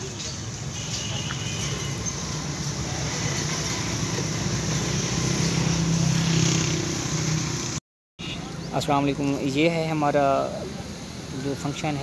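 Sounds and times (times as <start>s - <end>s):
outdoor hiss: 6.6s - 12.0s.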